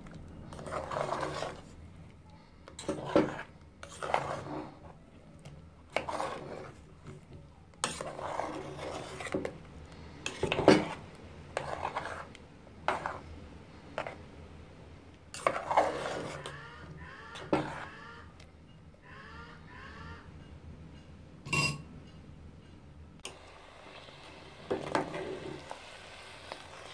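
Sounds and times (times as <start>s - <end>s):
spoon scraping metal pot: 0.5s - 1.8s, 2.7s - 5.0s, 5.9s - 13.3s, 13.9s - 14.2s, 15.3s - 18.8s.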